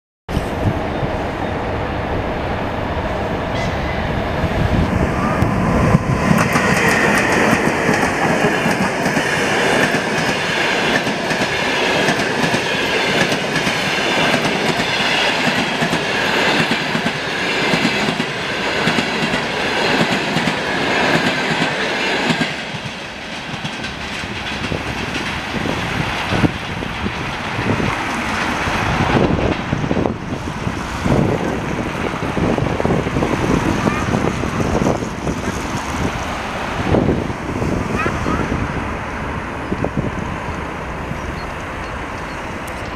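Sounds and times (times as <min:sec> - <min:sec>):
locomotive rumbling past: 0:00.3 - 0:42.9
train wheels clacking over rail joints: 0:06.3 - 0:30.2.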